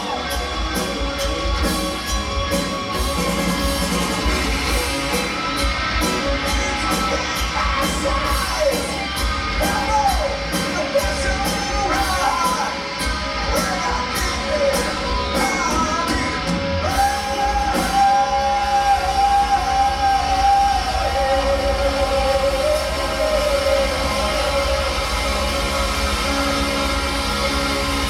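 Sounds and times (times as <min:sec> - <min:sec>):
heavy metal band playing: 0:00.0 - 0:28.0
man singing: 0:05.8 - 0:25.5.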